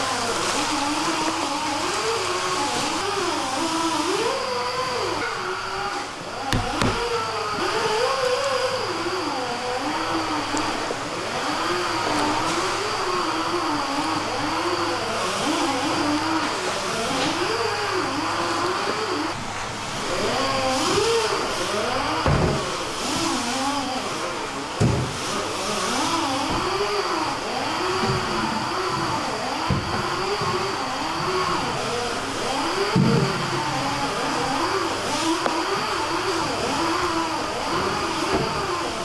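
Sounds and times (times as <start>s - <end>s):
knife chopping onto wooden board: 6.5s - 7.0s.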